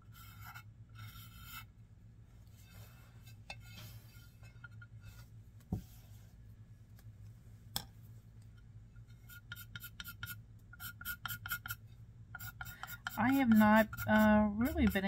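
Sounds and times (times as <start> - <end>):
pencil scratching on ceramic: 0.0 - 1.7, 9.1 - 15.0.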